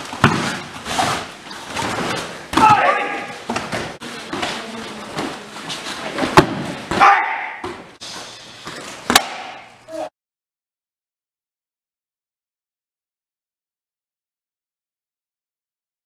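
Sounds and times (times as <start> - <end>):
short sharp shouts: 2.6 - 3.4, 6.9 - 7.6.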